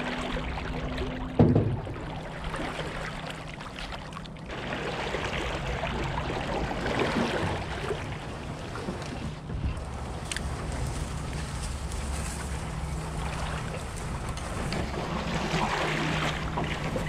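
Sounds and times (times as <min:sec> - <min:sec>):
reeds brushing along boat: 0:00.0 - 0:17.0
water swishing around paddle: 0:00.0 - 0:17.0
hard thump on boat: 0:01.2 - 0:02.0.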